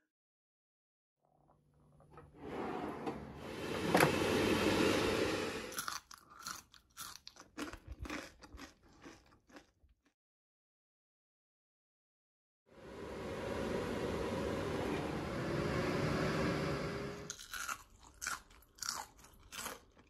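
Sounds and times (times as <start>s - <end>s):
crunching french fries: 5.7s - 10.1s, 17.3s - 20.0s.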